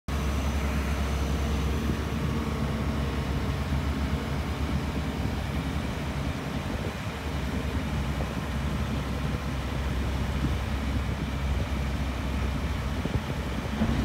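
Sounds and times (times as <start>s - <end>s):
diesel engine running: 0.1s - 14.0s.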